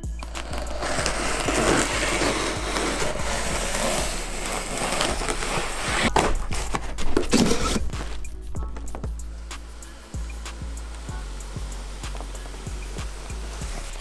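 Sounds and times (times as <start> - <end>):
knife slicing packing tape: 0.2 - 8.3.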